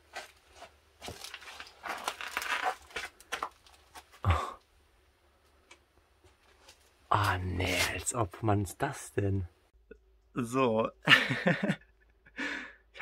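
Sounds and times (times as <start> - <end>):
debris rustling and crunching: 0.0 - 4.3.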